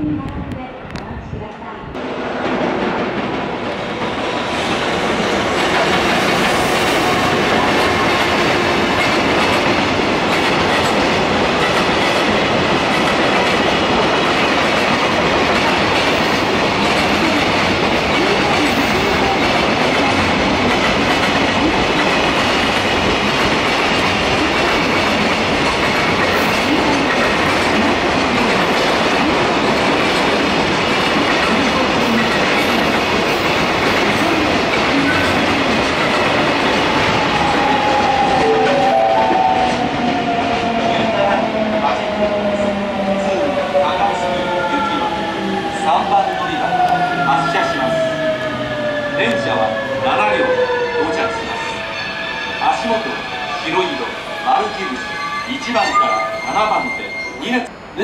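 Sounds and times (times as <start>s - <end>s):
freight train wheels rumbling: 0.0s - 55.5s
clickety-clack over rail joints: 5.2s - 37.0s.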